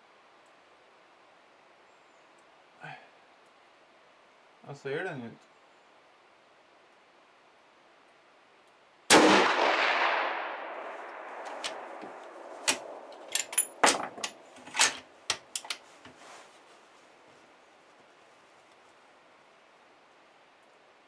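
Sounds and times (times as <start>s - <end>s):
rifle shot: 9.1s - 13.2s
rifle bolt clicking: 12.6s - 15.8s.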